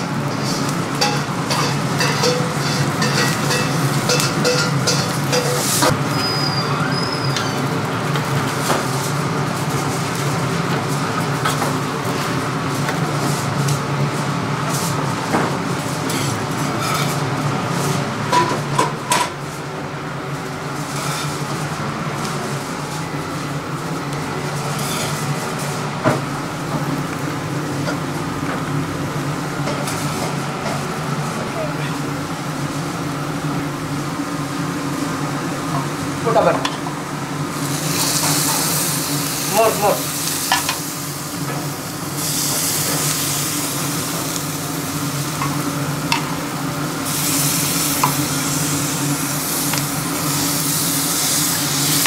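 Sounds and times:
kitchen extractor hum: 0:00.0 - 0:52.0
utensils and plates clinking: 0:00.3 - 0:06.4.

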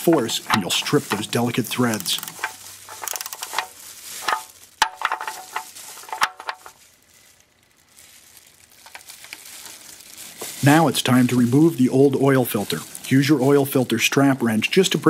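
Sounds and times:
ratchet wrench clicking: 0:01.9 - 0:03.6.

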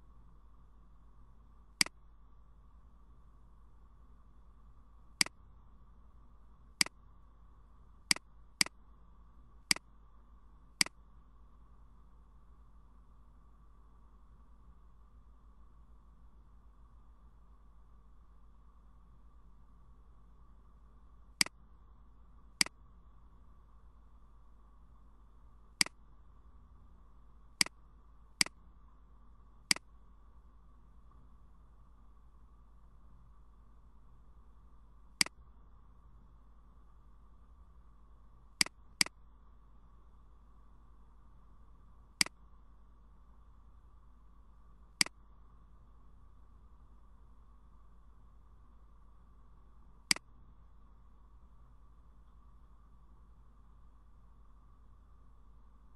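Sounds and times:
faint steady hum: 0:00.0 - 0:55.9
computer mouse clicks: 0:05.2 - 0:05.4, 0:29.7 - 0:29.9, 0:38.6 - 0:39.2.

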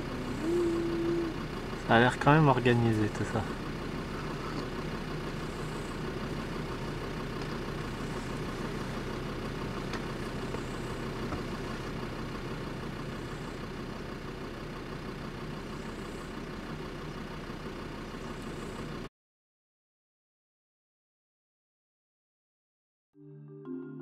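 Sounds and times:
vehicle engine idling: 0:00.0 - 0:19.1.

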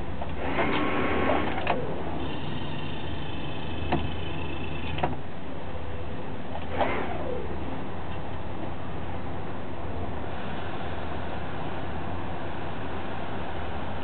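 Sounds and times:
motorboat engine running: 0:00.0 - 0:08.8.

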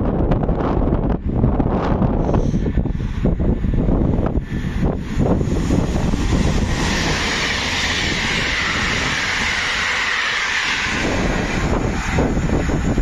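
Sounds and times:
passenger train passing: 0:00.0 - 0:13.0
high hiss: 0:04.3 - 0:13.0.

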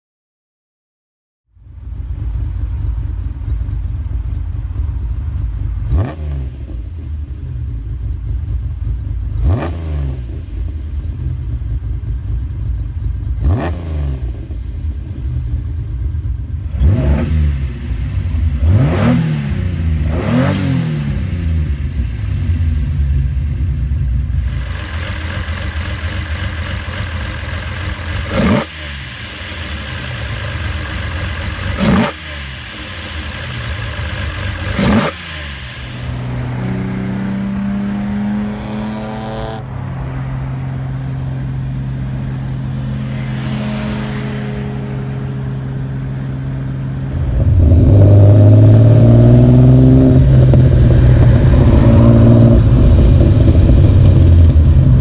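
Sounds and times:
car engine idling and revving: 0:01.5 - 0:55.0
carburetor intake hiss: 0:24.4 - 0:36.4.

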